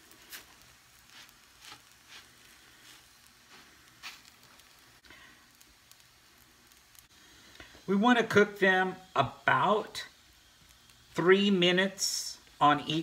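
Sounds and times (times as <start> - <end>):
faint sizzle: 0.0 - 13.0
spatula scraping dough on griddle: 0.1 - 4.8.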